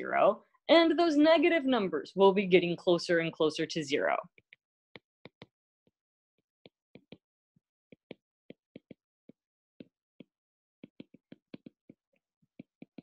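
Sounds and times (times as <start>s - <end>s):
stylus clicking on tablet screen: 4.1s - 5.6s, 6.6s - 7.3s, 7.9s - 13.0s.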